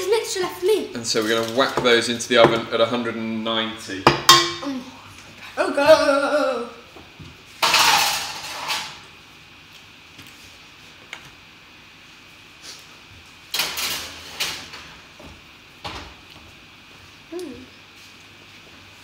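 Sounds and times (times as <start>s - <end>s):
metal baking trays clattering: 7.6s - 9.0s, 13.5s - 14.8s.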